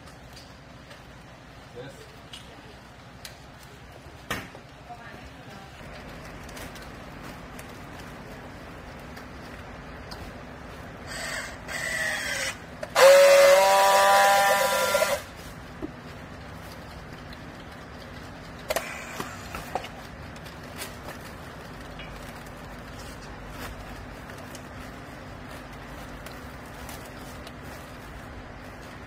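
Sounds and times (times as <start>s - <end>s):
strapping tool motor whine: 11.1s - 15.3s.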